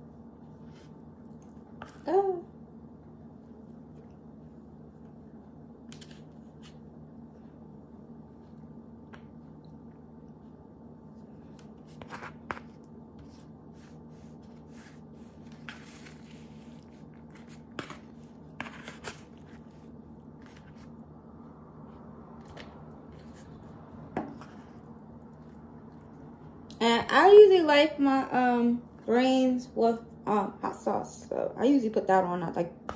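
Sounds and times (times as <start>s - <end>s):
steady low hum: 0.0s - 32.9s
person chewing food: 21.9s - 26.6s.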